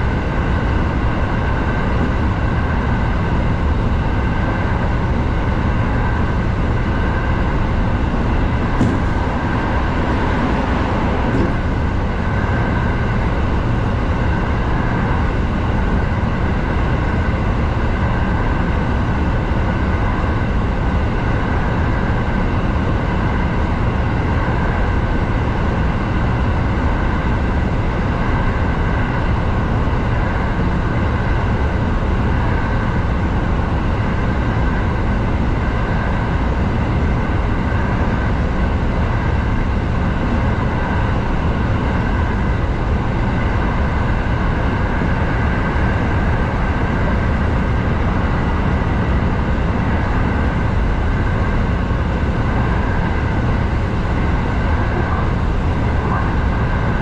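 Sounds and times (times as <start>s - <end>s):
train wheels rumbling on rail: 0.0s - 57.0s.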